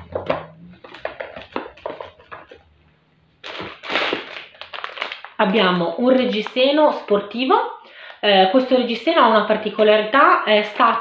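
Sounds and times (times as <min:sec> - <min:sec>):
cardboard boxes tapping and knocking: 0:00.0 - 0:02.7
plastic bag crinkling: 0:00.7 - 0:02.7, 0:03.4 - 0:08.2.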